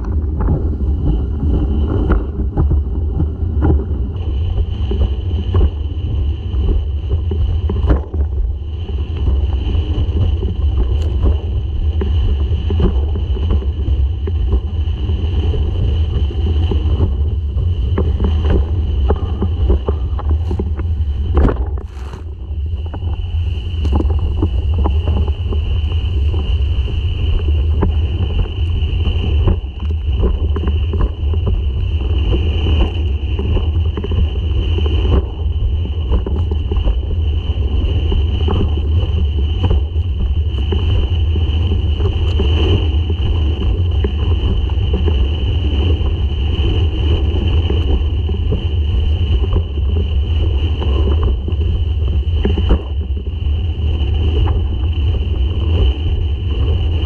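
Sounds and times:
steady high whine: 0.0s - 57.0s
strong wind buffeting microphone: 0.0s - 57.0s
board slapping across water: 16.5s - 23.2s.

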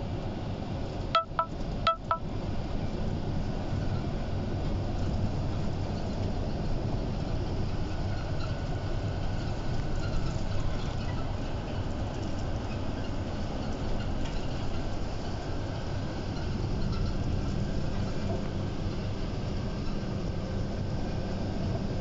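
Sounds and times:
bus engine and road rumble: 0.0s - 22.0s
short chiming tones: 1.2s - 2.2s.

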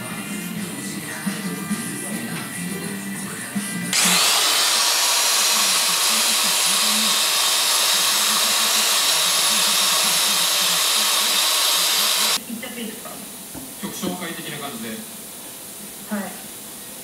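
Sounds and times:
wire brush grinder hissing: 3.9s - 12.4s.

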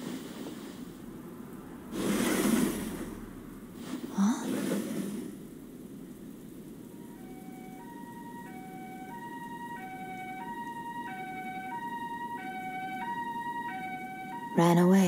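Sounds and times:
low background rumble: 0.0s - 15.0s
two-tone ambulance siren: 6.9s - 15.0s.

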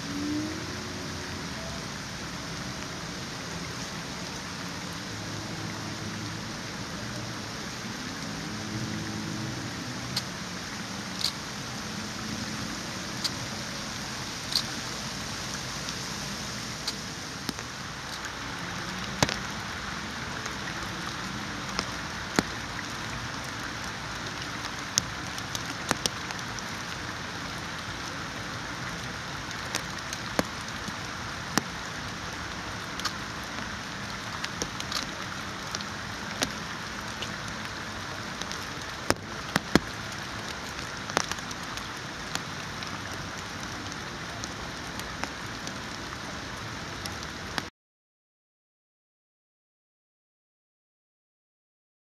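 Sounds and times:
steady rain falling: 0.0s - 47.7s
sharp taps of raindrops: 10.0s - 11.8s, 12.4s - 16.1s, 16.7s - 28.2s, 28.8s - 47.7s.

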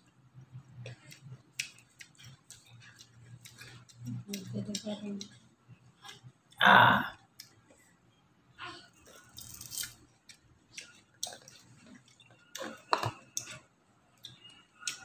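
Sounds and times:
people chewing crunchy fruit: 0.3s - 6.6s, 9.0s - 15.0s.

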